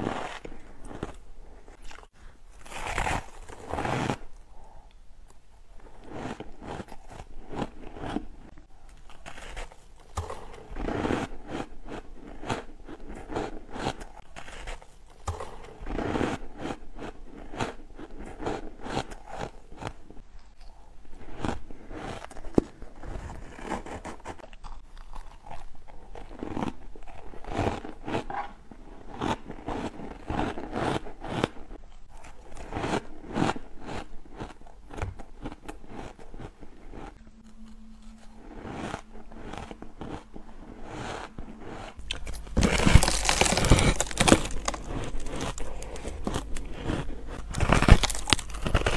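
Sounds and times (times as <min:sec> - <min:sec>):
shaved ice crunching when chewed: 0:05.8 - 0:48.9
ice squeezed and scooped: 0:37.6 - 0:48.9.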